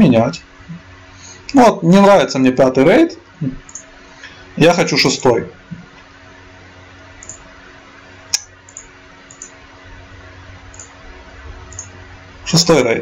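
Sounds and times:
steady low hum: 0.0 - 13.0
computer mouse clicks: 3.7 - 3.9, 7.2 - 7.4, 8.4 - 9.6, 10.7 - 10.9, 11.7 - 11.9.

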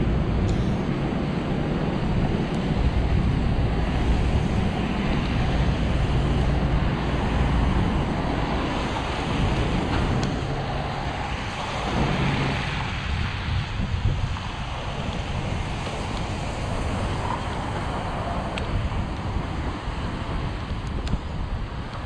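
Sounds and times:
wind buffeting microphone: 0.0 - 22.0
bicycle tyres on wet pavement: 1.2 - 22.0.

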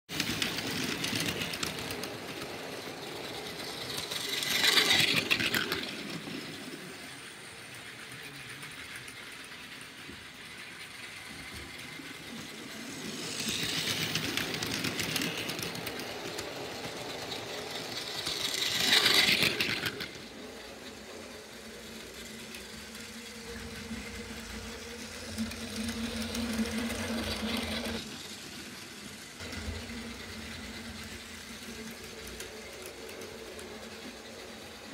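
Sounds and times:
toy train cars clattering: 0.1 - 34.9
toy train motors whirring: 0.1 - 34.9.

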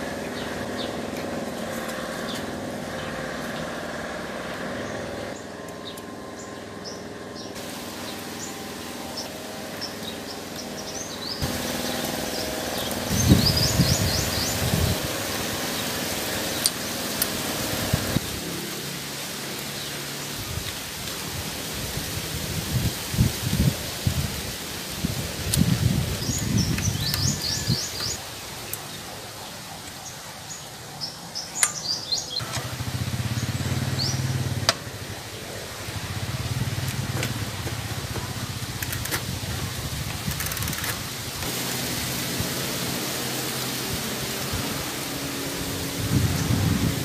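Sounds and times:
birds chirping: 0.0 - 20.9, 25.4 - 47.0
low motor vehicle hum: 0.0 - 47.0
sharp clicks: 38.7 - 39.3, 40.2 - 41.2.

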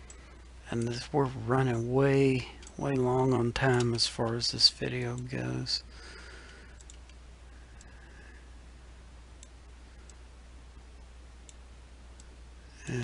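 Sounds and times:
low hum: 0.0 - 13.0
microphone hiss: 0.0 - 13.0
computer mouse clicks: 6.7 - 7.2.

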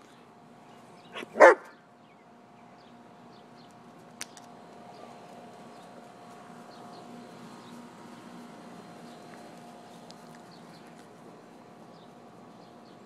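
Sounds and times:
dog barking: 1.2 - 1.8.

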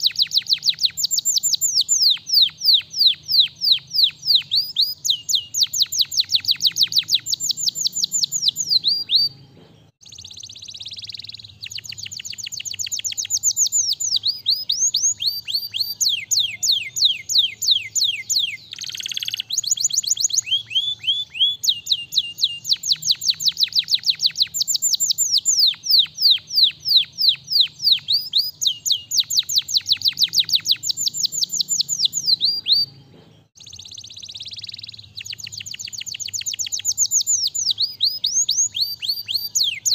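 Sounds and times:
canary singing rapid trills: 0.0 - 39.9.

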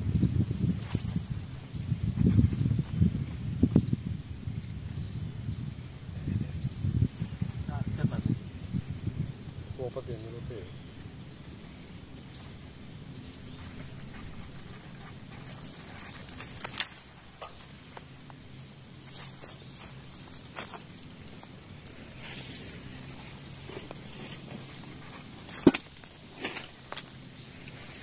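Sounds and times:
twigs snapping and crackling: 15.6 - 18.4, 23.1 - 27.3.

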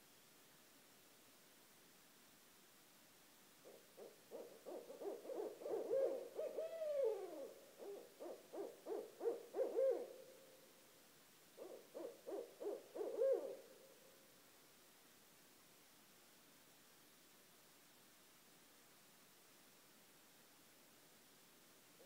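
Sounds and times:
owls hooting: 3.6 - 10.2, 11.6 - 13.7.

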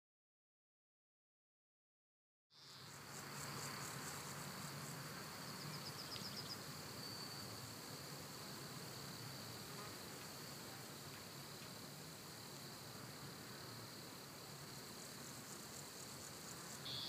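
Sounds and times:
fast insect chirps: 2.6 - 9.6, 13.6 - 17.0
high-pitched insect drone: 13.6 - 17.0.

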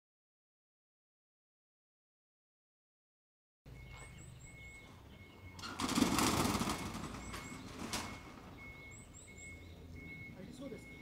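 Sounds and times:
small birds chirping: 3.7 - 11.0
loud rattling rumble: 5.6 - 8.6.

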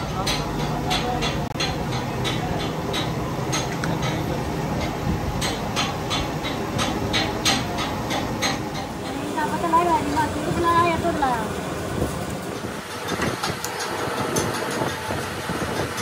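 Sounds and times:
sharp metallic clicks: 12.3 - 16.0.

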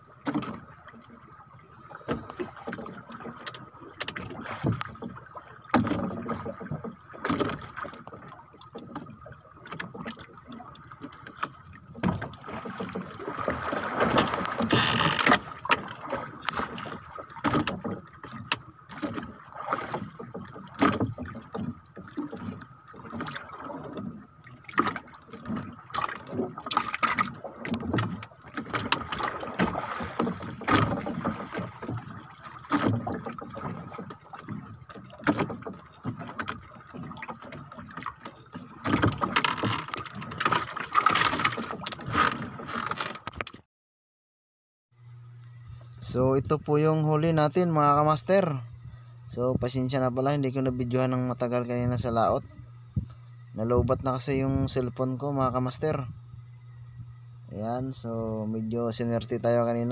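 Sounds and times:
knocks and clicks of fishing gear: 0.2 - 0.6, 2.0 - 43.6, 52.6 - 53.2.

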